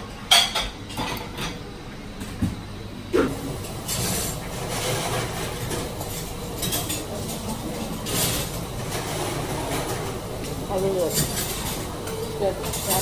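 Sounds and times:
restaurant room noise: 0.0s - 13.0s
cutlery and dishes clinking: 3.8s - 13.0s.

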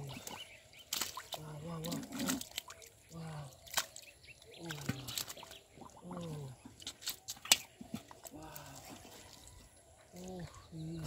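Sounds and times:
hands squelching in wet mud: 0.0s - 11.0s
sharp wet slap: 0.2s - 1.4s, 3.7s - 4.0s, 6.8s - 7.8s.

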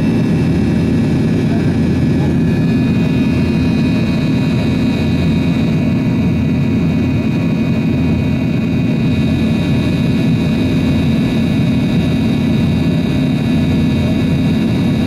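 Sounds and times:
jet engine whine and rumble: 0.0s - 15.0s.

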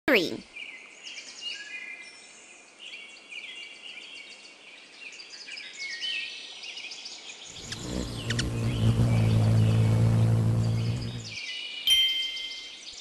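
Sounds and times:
birds chirping: 7.5s - 12.9s.

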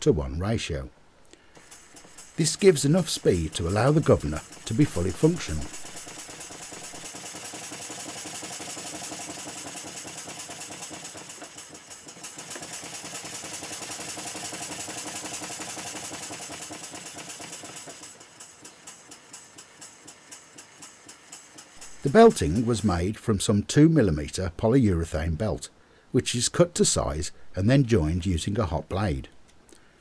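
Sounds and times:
model steam engine running: 1.3s - 23.8s.

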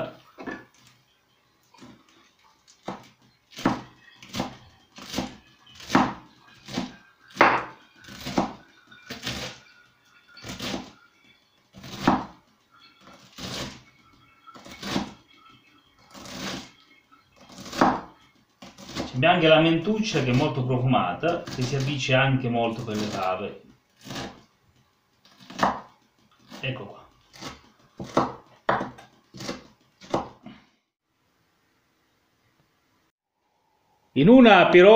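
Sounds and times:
knife chopping herbs on wooden board: 2.8s - 9.6s, 11.8s - 12.3s, 17.5s - 19.1s, 25.4s - 26.6s, 27.3s - 30.4s.

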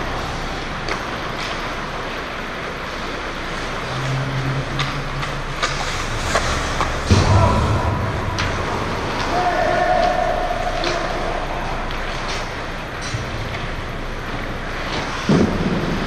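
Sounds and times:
arena hum: 0.0s - 16.0s
skate blades scraping ice: 4.7s - 7.2s
hockey sticks clacking: 4.7s - 7.4s, 8.3s - 15.9s.

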